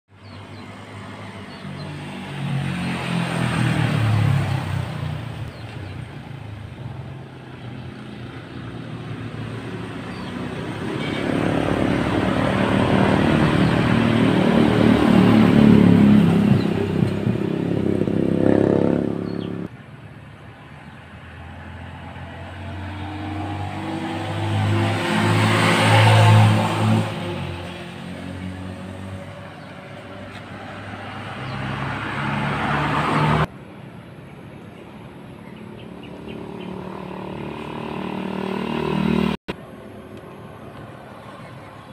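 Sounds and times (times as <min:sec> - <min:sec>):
vehicle engines passing: 0:00.1 - 0:41.9.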